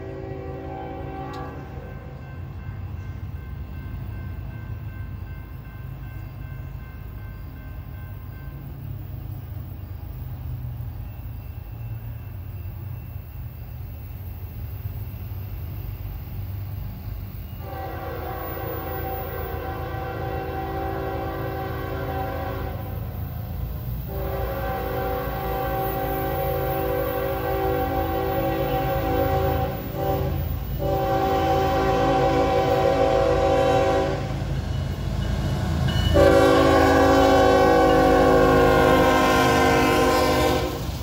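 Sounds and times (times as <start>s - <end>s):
locomotive air horn: 0.0s - 2.1s, 17.6s - 23.1s, 24.0s - 34.6s, 36.1s - 41.0s
train rumbling: 0.0s - 41.0s.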